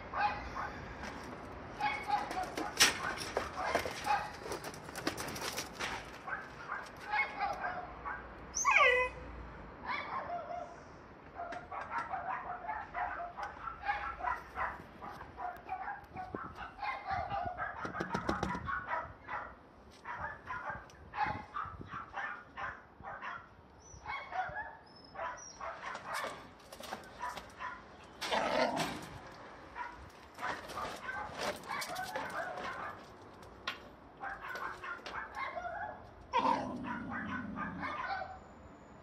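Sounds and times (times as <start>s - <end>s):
rustling and clicking: 1.1s - 7.1s, 25.8s - 35.5s
dog whimpering and yipping: 8.6s - 9.2s.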